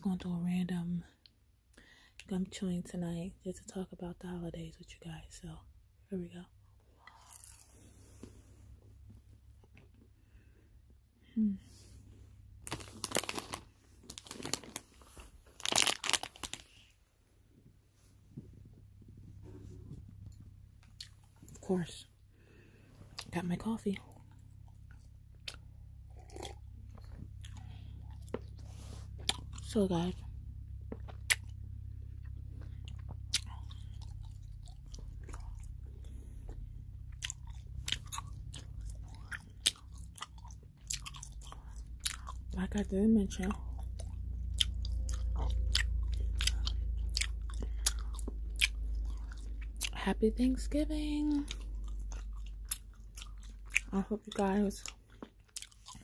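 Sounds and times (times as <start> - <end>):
steady low hum: 0.0 - 56.0
person chewing gum: 7.0 - 8.4, 18.4 - 22.0, 23.0 - 50.4, 51.0 - 56.0
plastic bag crinkling: 12.6 - 16.9
wet smacks and gum clicks: 30.8 - 31.6.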